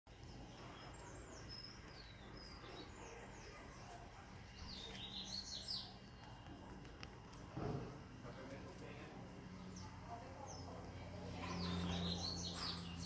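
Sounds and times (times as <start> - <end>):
birds singing: 0.1 - 6.9, 8.2 - 13.0
birds chirping: 0.1 - 13.0.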